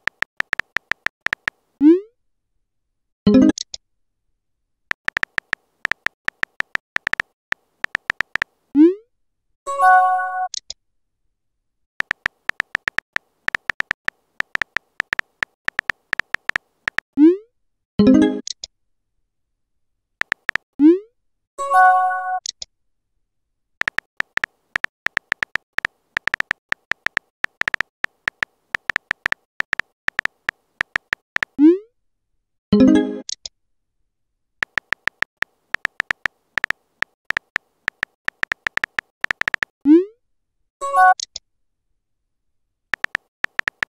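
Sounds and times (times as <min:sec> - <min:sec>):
phone keyboard clicks: 0:00.0 - 0:01.6, 0:04.9 - 0:08.5, 0:12.0 - 0:17.1, 0:20.2 - 0:20.6, 0:23.8 - 0:31.6, 0:34.6 - 0:39.8, 0:42.9 - 0:43.9.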